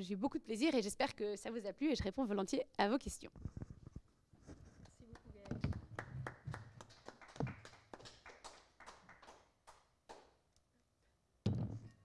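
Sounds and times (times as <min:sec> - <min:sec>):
sparse applause: 0:05.7 - 0:10.2.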